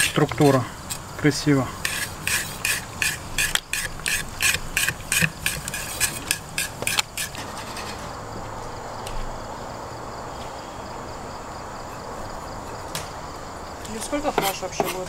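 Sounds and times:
knife rasping strokes: 1.8s - 8.0s, 14.3s - 15.0s.

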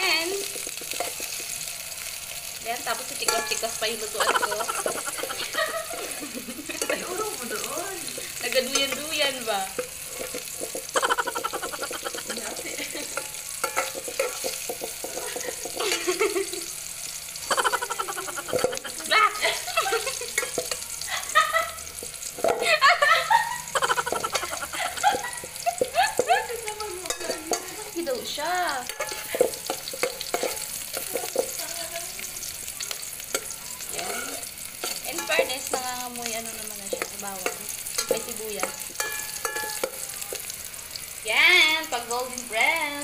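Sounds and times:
onions sizzling in oil: 0.0s - 43.0s
metal spoon scraping pot: 0.4s - 1.7s, 3.2s - 16.2s, 17.6s - 20.8s, 22.0s - 22.7s, 27.0s - 28.1s, 28.8s - 31.6s, 32.9s - 40.5s.

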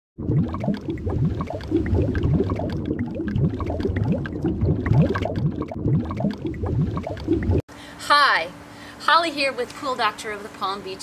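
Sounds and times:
bubbling water gurgling: 0.2s - 7.6s.

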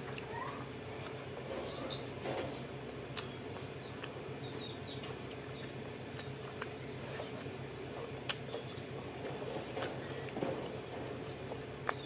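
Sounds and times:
chewing and lip smacks: 3.1s - 12.0s.

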